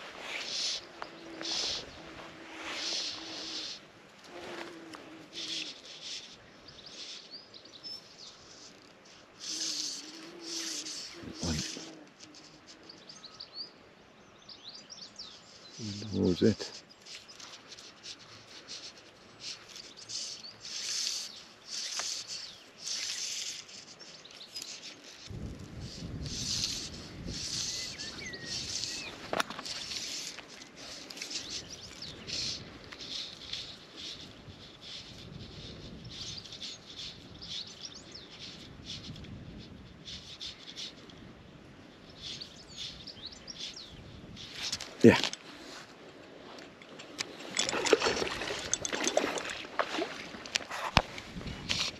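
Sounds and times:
fishing line hissing through guides: 0.0 - 7.2, 16.5 - 41.2, 46.9 - 51.9
rustling breeze: 0.0 - 51.9
bird chirping: 27.5 - 39.1, 42.0 - 45.1.

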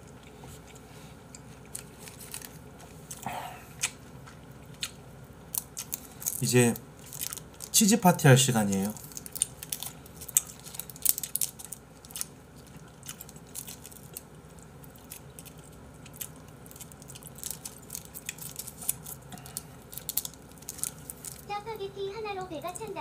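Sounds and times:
plastic film crinkling: 1.8 - 2.6, 5.5 - 7.8, 8.5 - 23.0.

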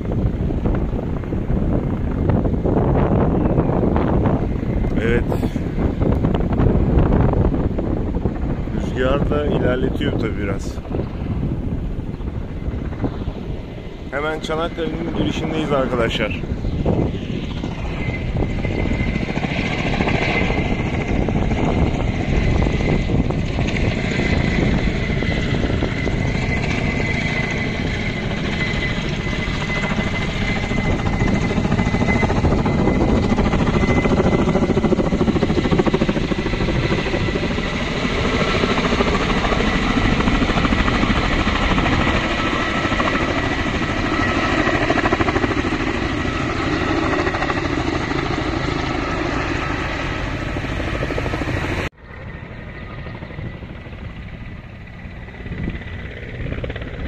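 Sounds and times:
helicopter rotor chop: 0.0 - 57.0.

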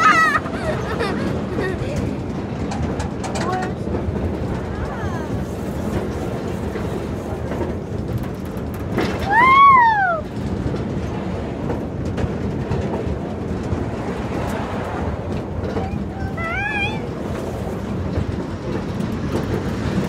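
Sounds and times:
rider whooping: 0.0 - 1.5, 9.2 - 10.4
amusement ride rattling rumble: 0.0 - 20.0.

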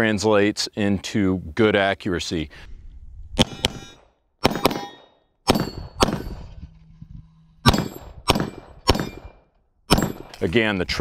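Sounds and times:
pistol shots: 3.4 - 6.4, 7.6 - 10.4.

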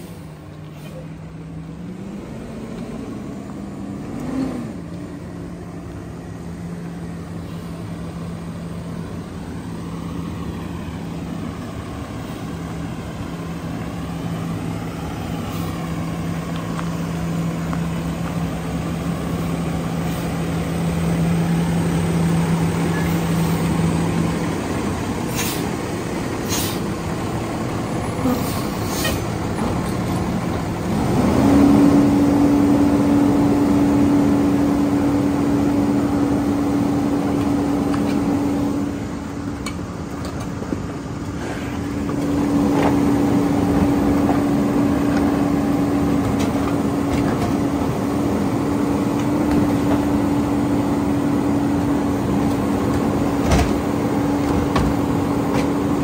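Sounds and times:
air brake hisses: 0.0 - 1.1, 25.2 - 25.7, 26.4 - 26.9, 28.2 - 29.3
garbage truck engine running: 0.0 - 56.0.

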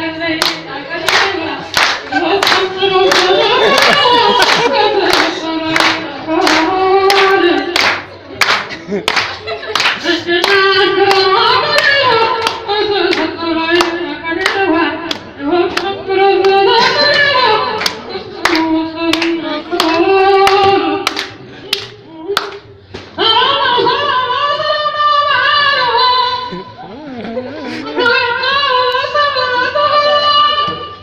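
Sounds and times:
person singing: 0.0 - 7.8, 23.2 - 31.0
rhythmic handclapping: 0.4 - 23.2.

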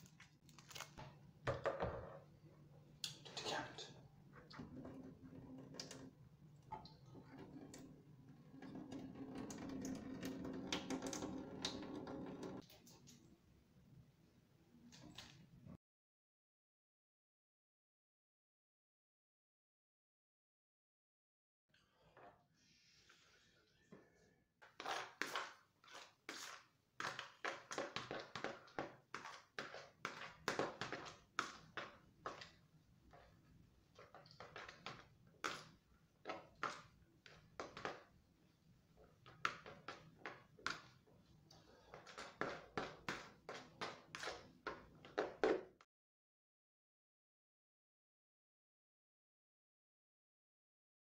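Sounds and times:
hands squishing wet food mixture: 24.6 - 45.4.

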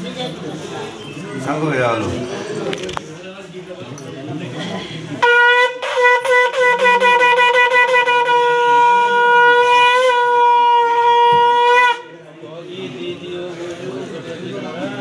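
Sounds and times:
conch shell blown: 5.2 - 12.3.

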